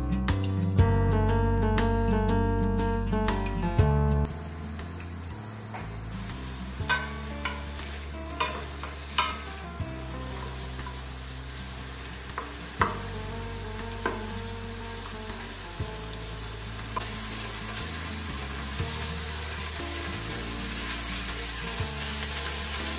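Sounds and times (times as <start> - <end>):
vegetables sizzling in a pot: 4.2 - 22.9
wooden spoon knocking on pot: 12.3 - 13.2.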